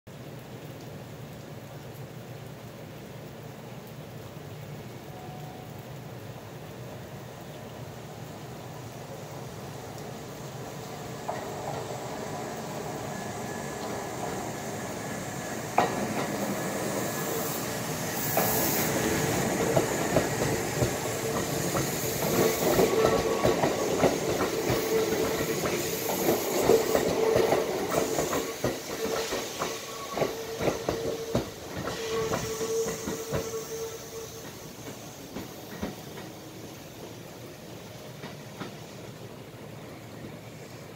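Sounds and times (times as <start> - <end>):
electric train hum: 5.1 - 40.9
train wheels clicking over rail joints: 11.0 - 37.2, 38.0 - 39.1.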